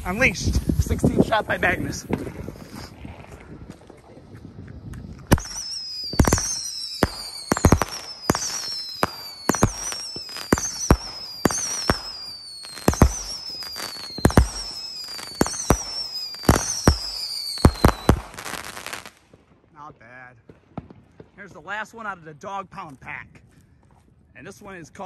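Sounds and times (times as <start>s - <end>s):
firework shots: 0.0s - 4.4s, 5.2s - 19.6s
falling firework whistle: 5.2s - 19.2s.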